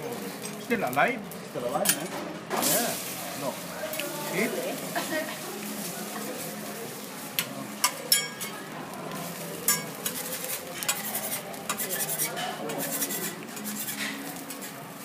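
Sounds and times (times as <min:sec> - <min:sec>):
metal utensils clinking on griddle: 0:00.0 - 0:15.0.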